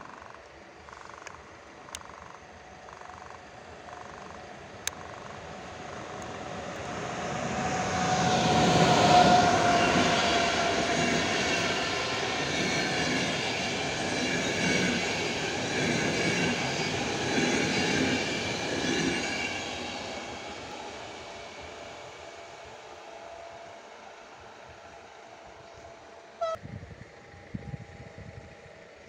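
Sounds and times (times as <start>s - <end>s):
passenger train passing at speed: 0.4s - 29.0s
train wheels beating over rails: 4.2s - 21.4s.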